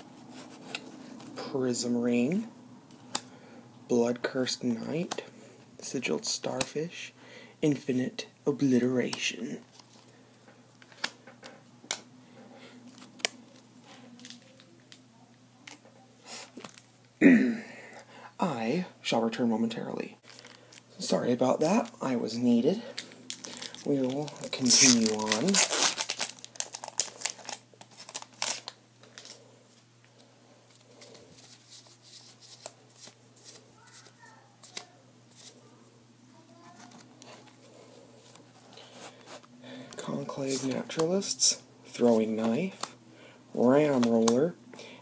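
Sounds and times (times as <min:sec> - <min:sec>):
soft card shuffling: 0:00.0 - 0:01.4, 0:22.9 - 0:35.7, 0:36.5 - 0:41.3
faint low room hum: 0:00.0 - 0:45.0
crisp packaging rustles: 0:20.2 - 0:20.9, 0:22.9 - 0:29.4.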